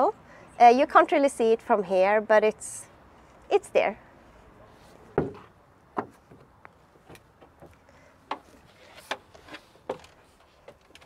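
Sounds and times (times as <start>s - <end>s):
footsteps and knocks on truck steps: 5.0s - 11.0s.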